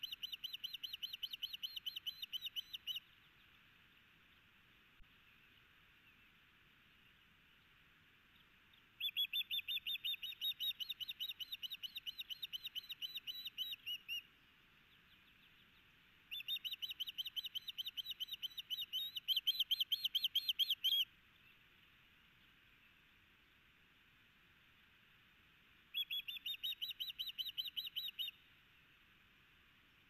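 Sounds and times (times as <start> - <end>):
osprey calling: 0.0 - 3.1, 9.0 - 14.3, 16.3 - 21.6, 25.9 - 28.4.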